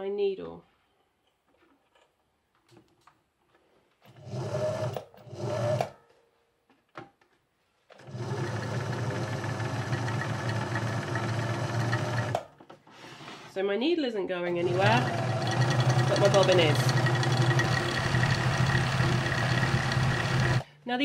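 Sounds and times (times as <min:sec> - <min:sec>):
sewing machine motor running: 0:04.2 - 0:05.9, 0:08.0 - 0:12.5, 0:14.6 - 0:20.6.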